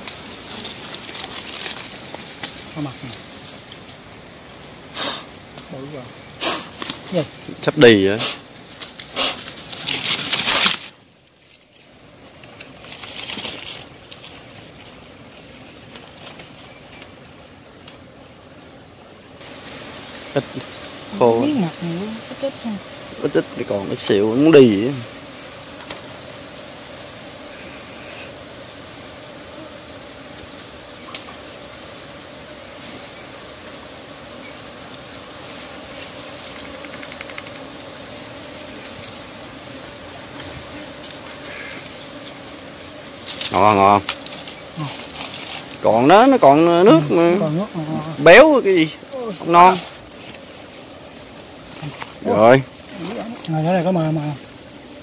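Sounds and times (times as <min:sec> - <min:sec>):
hand scraping inside tree hollow: 0:00.0 - 0:05.6, 0:06.2 - 0:18.2, 0:19.4 - 0:55.0
honey bees humming: 0:00.0 - 0:55.0
leaves and brush rustling: 0:00.0 - 0:55.0
rapid faint ticks: 0:36.4 - 0:37.7.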